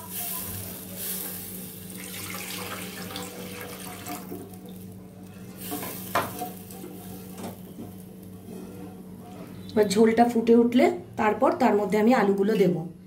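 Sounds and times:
water splashing into a pan: 1.9s - 4.8s.

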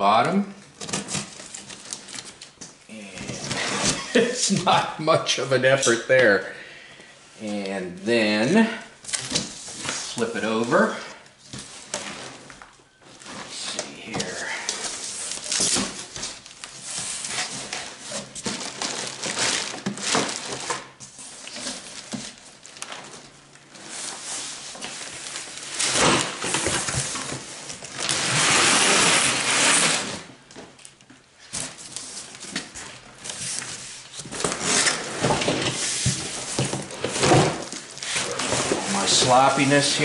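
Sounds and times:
cardboard scraping on concrete: 28.0s - 30.3s, 31.6s - 40.0s
cardboard box rustling and scraping: 31.7s - 40.0s.

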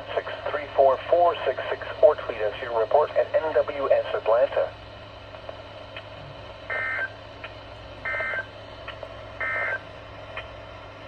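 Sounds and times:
steady low hum: 0.0s - 11.0s
warbling data tone bursts: 6.7s - 7.2s, 8.0s - 8.5s, 9.4s - 9.8s.

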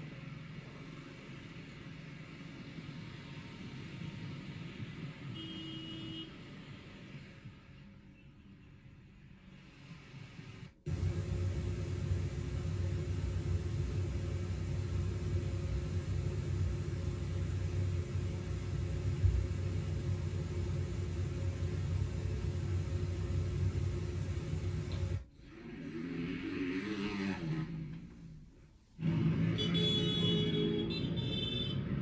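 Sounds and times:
air conditioning rumble: 10.8s - 25.3s.

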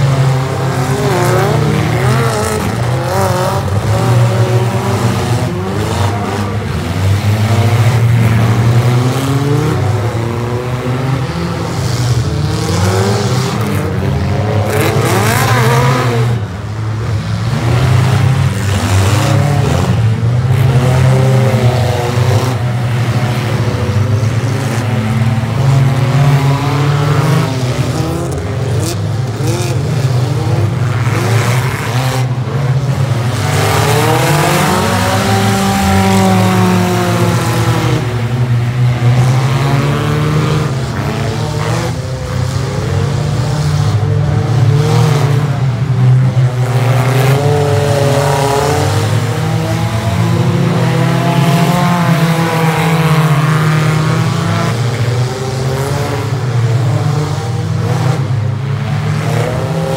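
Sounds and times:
race car engines revving: 0.0s - 59.9s.

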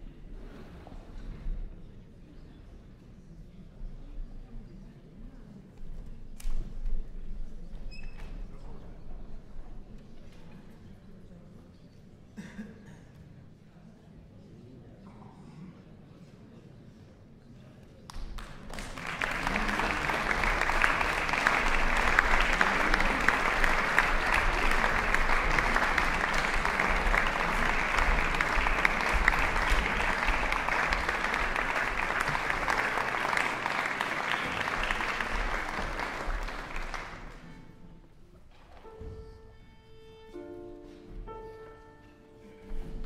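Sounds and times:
audience applauding: 18.1s - 37.6s.

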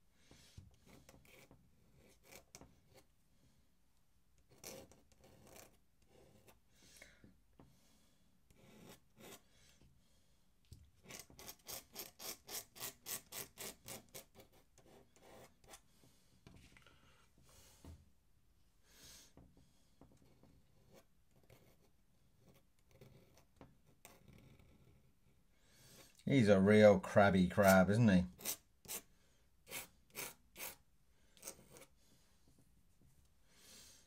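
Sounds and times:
pen nib scratching on paper: 0.8s - 3.1s, 4.4s - 6.6s, 8.5s - 9.5s, 11.0s - 15.8s, 20.2s - 25.4s, 27.6s - 29.1s, 29.7s - 30.8s, 31.4s - 31.9s.

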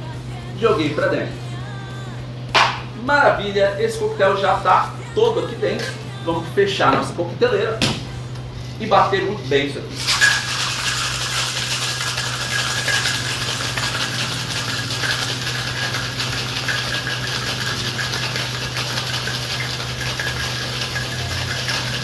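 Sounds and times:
ice rattling in cocktail shaker: 9.4s - 22.0s.

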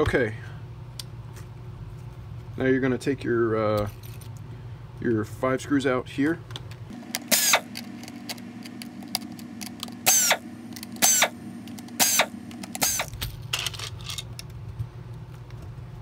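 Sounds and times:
electric screwdriver running: 7.0s - 13.2s.

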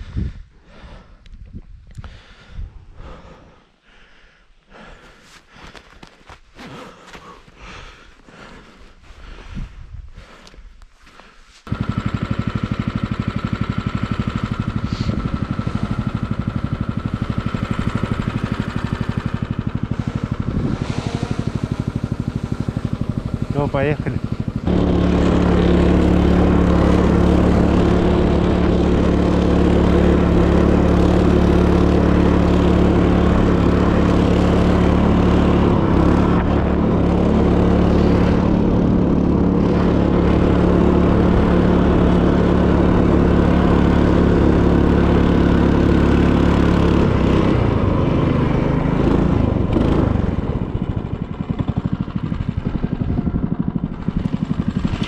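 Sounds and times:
small petrol engine running: 11.7s - 55.0s.

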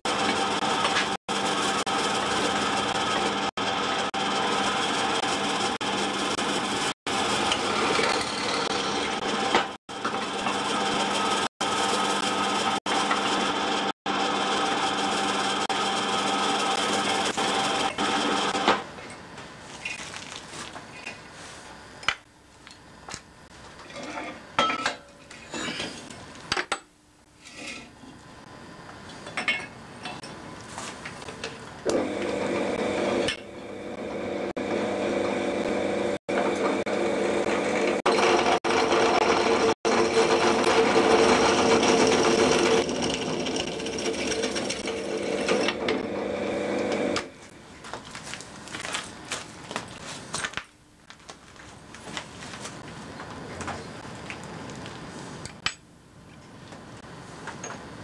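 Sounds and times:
pillar drill motor running: 0.1s - 18.7s, 31.9s - 47.3s.

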